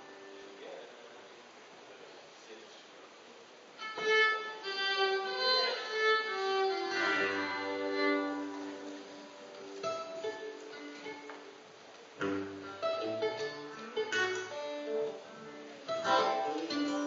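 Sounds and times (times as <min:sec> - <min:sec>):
fiddle playing a melody: 0:03.8 - 0:17.0.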